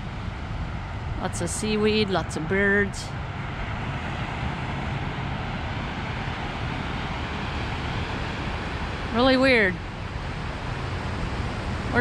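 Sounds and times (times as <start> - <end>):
ocean surf breaking: 0.0 - 12.0.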